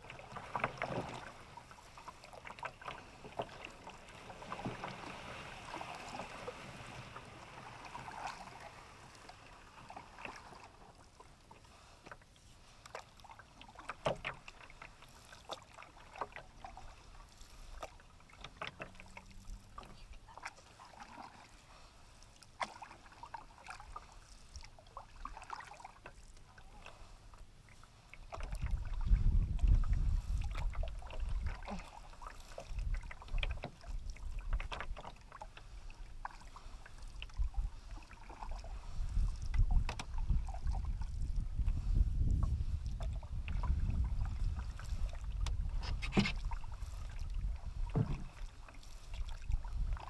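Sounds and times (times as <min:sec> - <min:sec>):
paddle splashes and drips: 0:00.0 - 0:50.0
water lapping along hull: 0:00.0 - 0:50.0
wind buffeting microphone: 0:28.6 - 0:31.5, 0:38.7 - 0:48.4.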